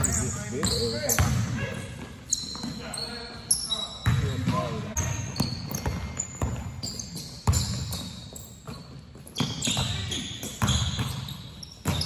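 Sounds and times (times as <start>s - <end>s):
basketball bouncing on gym court: 0.0s - 1.8s, 4.0s - 12.0s.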